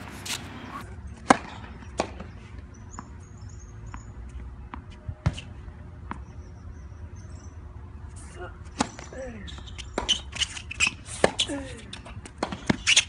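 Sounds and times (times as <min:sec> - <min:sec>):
racket hitting tennis ball: 0:00.0 - 0:02.2, 0:10.0 - 0:11.5
tennis ball bouncing: 0:00.0 - 0:02.2.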